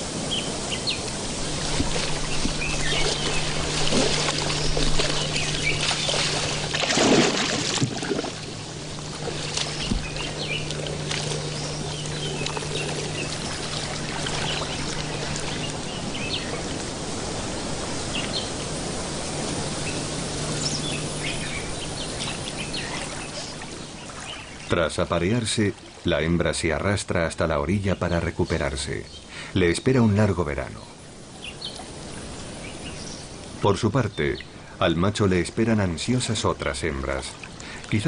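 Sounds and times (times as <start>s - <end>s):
water sloshing and splashing: 0.0s - 26.2s, 37.0s - 38.0s
wash of water: 0.0s - 26.3s
faint low hum: 0.0s - 38.0s
bird chirps: 9.5s - 16.7s.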